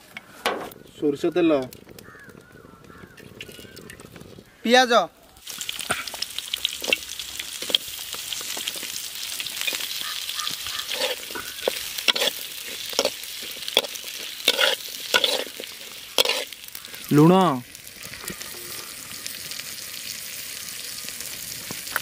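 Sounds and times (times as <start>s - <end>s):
onions sizzling in oil: 5.3s - 22.0s
spatula scraping pan: 9.5s - 16.6s.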